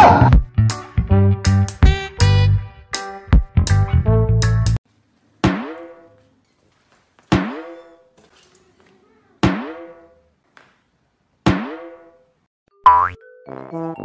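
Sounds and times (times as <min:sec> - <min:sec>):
background music: 0:00.0 - 0:04.8
cartoon boing twang: 0:09.4 - 0:10.0, 0:12.8 - 0:13.2.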